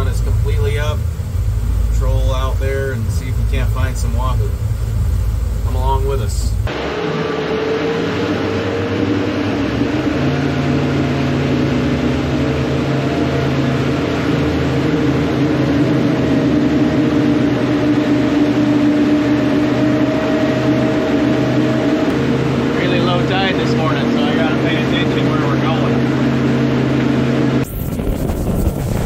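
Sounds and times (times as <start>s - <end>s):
outboard motor running: 0.0s - 29.0s.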